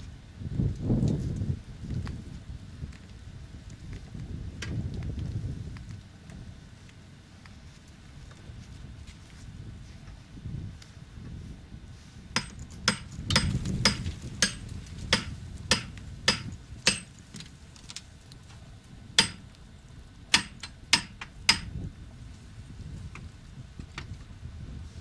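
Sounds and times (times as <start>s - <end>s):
sharp knocks: 12.4s - 17.1s, 19.2s - 19.4s, 20.4s - 21.7s.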